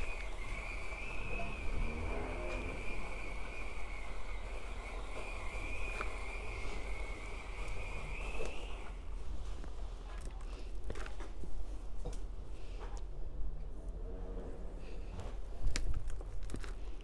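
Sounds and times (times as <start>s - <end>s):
low rumble: 0.0s - 8.2s.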